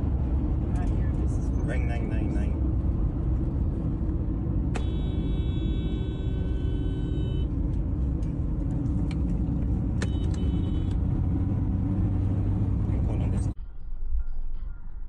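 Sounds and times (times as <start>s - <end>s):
car cabin road rumble: 0.0s - 13.6s
held tone: 4.8s - 7.6s, 10.0s - 11.0s.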